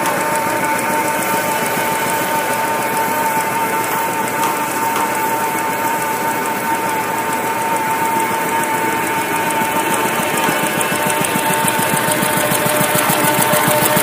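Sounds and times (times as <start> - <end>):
rapid mechanical clatter of machine: 0.0 - 14.0
steady machine whine: 0.0 - 14.0.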